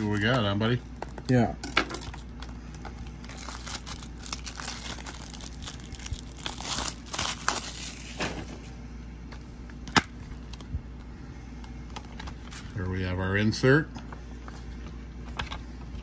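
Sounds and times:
plastic shrink-wrap crinkling: 0.0 - 8.2.

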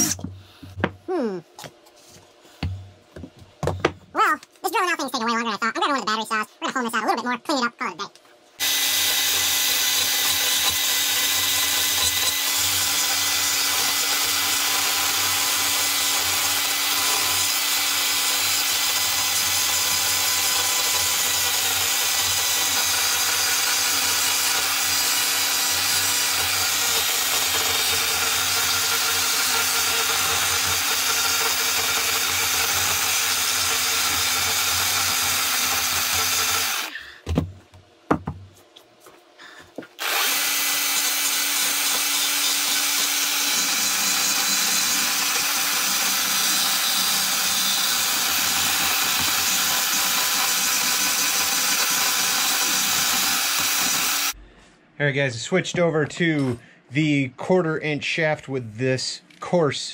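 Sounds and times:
rotary carving tool whining: 8.6 - 37.0, 40.0 - 54.4
knocks: 37.2 - 38.5.

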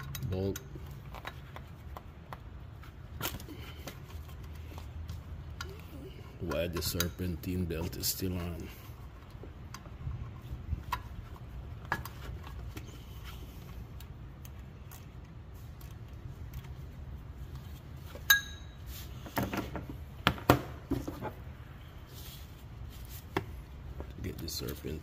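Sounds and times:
sharp metallic clink: 18.3 - 18.8.

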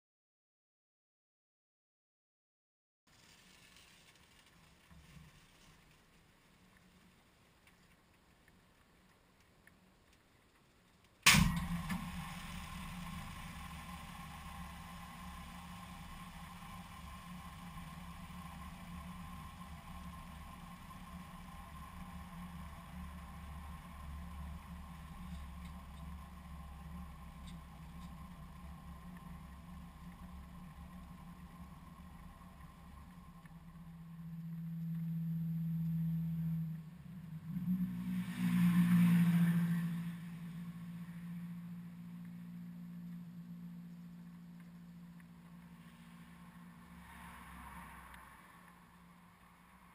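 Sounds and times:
diesel engine running: 11.3 - 48.9.

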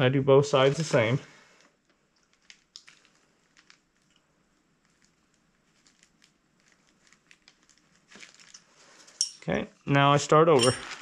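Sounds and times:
plastic sheeting rustling: 0.6 - 1.6, 2.3 - 4.0, 4.8 - 9.0, 10.6 - 11.0.

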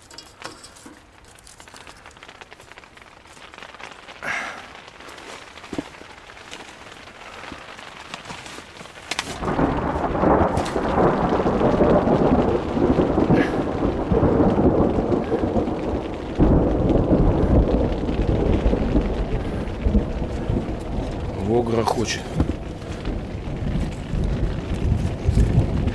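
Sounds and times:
heavy rain drumming on tent: 0.0 - 25.9
thunder rumbling: 9.2 - 25.9.

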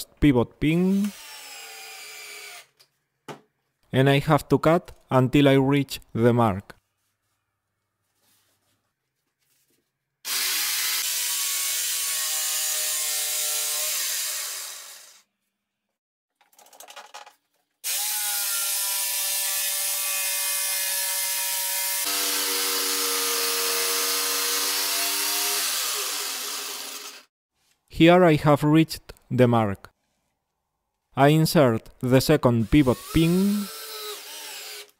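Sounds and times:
jigsaw cutting wood: 0.9 - 2.7, 10.3 - 15.2, 17.8 - 27.3, 32.7 - 34.9.

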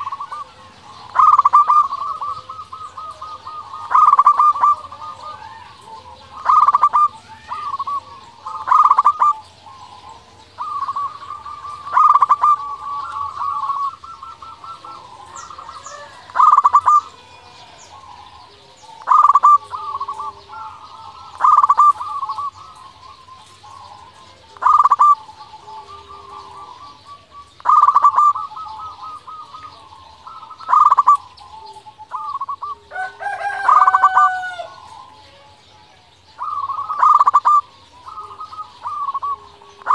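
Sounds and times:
bird call with sliding notes: 0.0 - 39.9
dove cooing song: 0.0 - 39.9.

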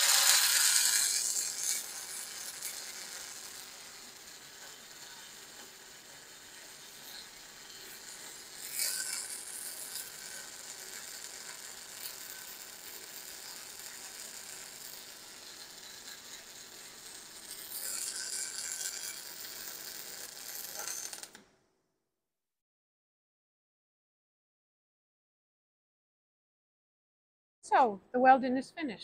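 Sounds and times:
arc welding torch: 0.0 - 21.4.

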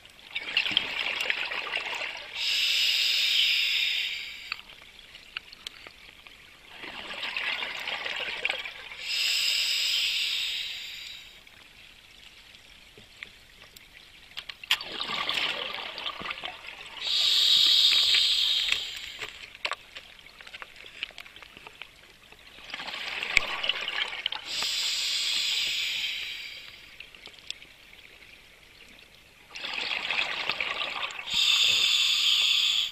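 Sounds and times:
regulator air hiss: 2.4 - 4.6, 9.0 - 11.4, 17.0 - 19.4, 24.5 - 27.0, 31.3 - 32.9
exhaled bubbles underwater: 14.8 - 19.2, 29.5 - 31.9.

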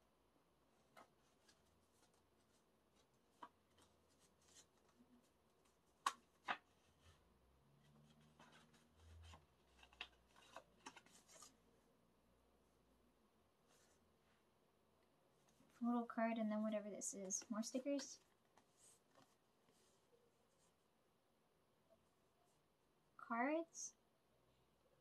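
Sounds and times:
small clicks of cd case: 6.0 - 6.6, 9.7 - 11.5.

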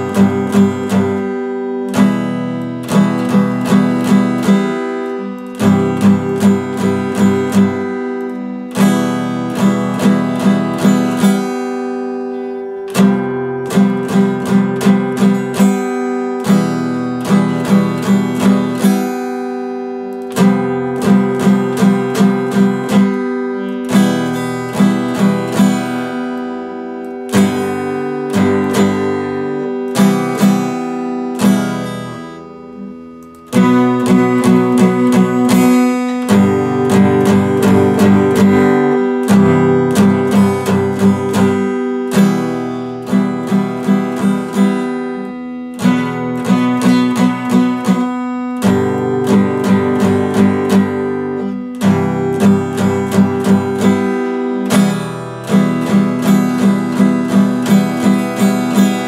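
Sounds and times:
acoustic guitar strumming chords: 0.0 - 59.0.

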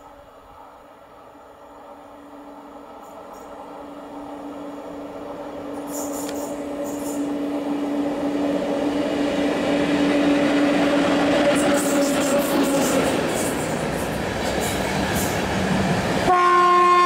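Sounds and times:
electric locomotive humming: 0.0 - 17.0
train running gear rumble: 2.8 - 16.3.

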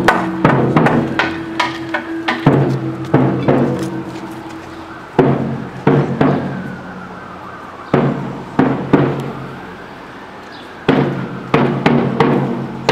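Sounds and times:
deep drum hits: 0.0 - 4.1, 5.2 - 6.6.

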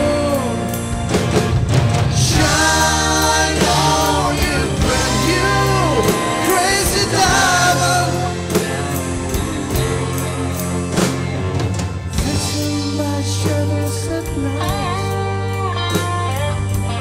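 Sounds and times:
live rock band playing: 0.0 - 17.0
voices singing long notes: 2.1 - 11.4.

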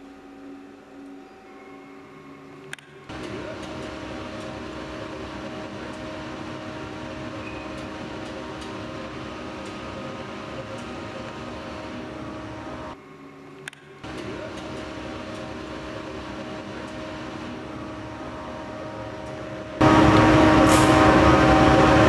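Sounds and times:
coffee roaster air rushing: 3.1 - 13.0, 14.0 - 22.0.

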